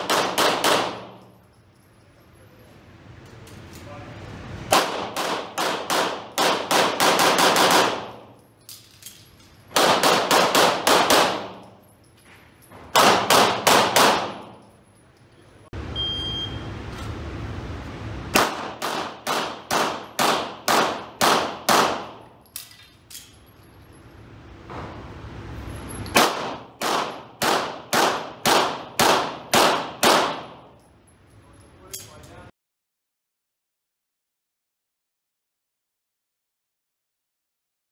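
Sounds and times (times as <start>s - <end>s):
pistol shots echoing indoors: 0.0s - 1.5s, 4.7s - 11.8s, 12.9s - 14.7s, 18.3s - 23.2s, 26.0s - 30.8s
shot timer beep: 15.9s - 16.7s.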